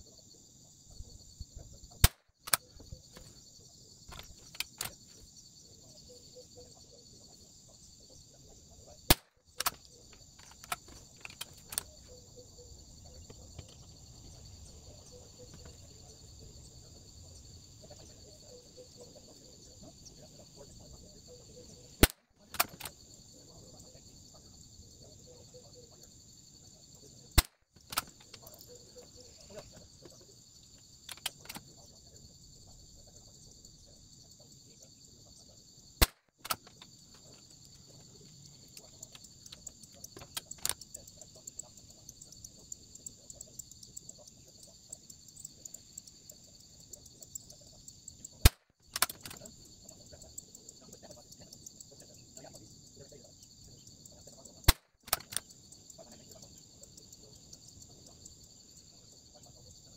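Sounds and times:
insects chirring: 0.0s - 59.9s
gun handling clicks: 2.0s - 2.6s, 4.1s - 5.0s, 9.1s - 11.9s, 22.0s - 23.0s, 27.4s - 28.6s, 31.1s - 31.7s, 36.0s - 36.8s, 48.5s - 49.4s, 54.7s - 55.4s.

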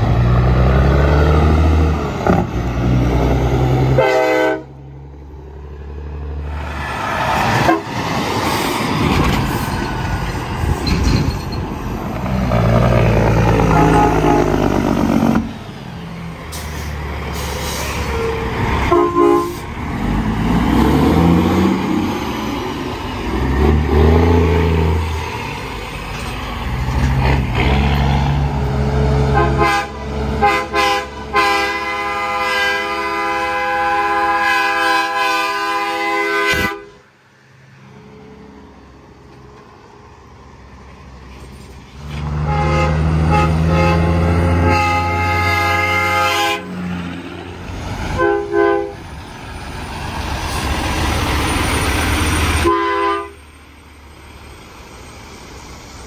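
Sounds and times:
diesel truck engines revving: 0.0s - 56.0s
train horns blowing: 3.9s - 4.8s, 7.6s - 8.0s, 13.5s - 15.5s, 18.1s - 19.6s, 29.2s - 37.0s, 42.3s - 46.8s, 48.1s - 49.0s, 52.6s - 53.4s.

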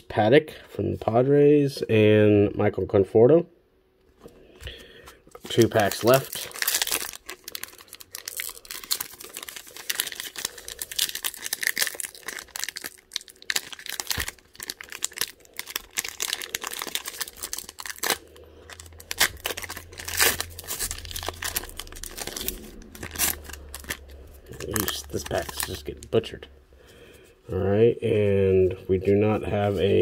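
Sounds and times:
wrapper crinkling and tearing: 5.3s - 26.4s.

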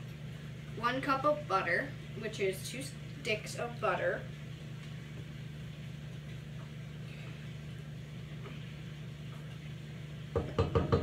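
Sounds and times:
low mechanical hum: 0.0s - 11.0s
utensil knocking against bowl: 10.4s - 11.0s.

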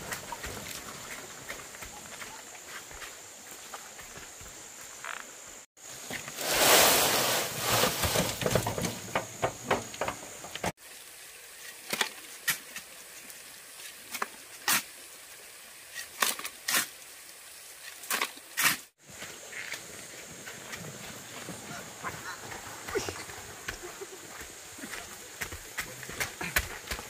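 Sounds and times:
stones clattering and knocking: 7.6s - 10.7s.

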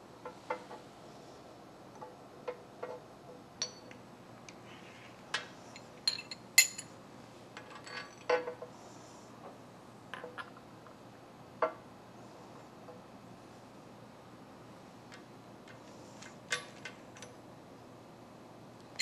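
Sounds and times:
steel clamps clinking on metal table: 5.8s - 6.9s.

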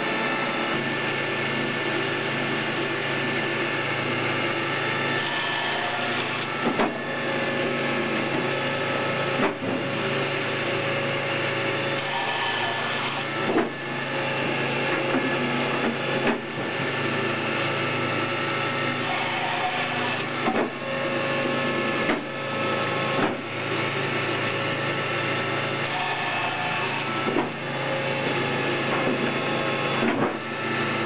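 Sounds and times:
electric motor and pumps humming: 0.0s - 31.0s
sharp machine knocks: 6.6s - 7.0s, 9.4s - 9.9s, 13.4s - 13.8s, 20.4s - 20.8s, 22.0s - 22.3s, 23.2s - 23.5s, 30.0s - 30.5s.

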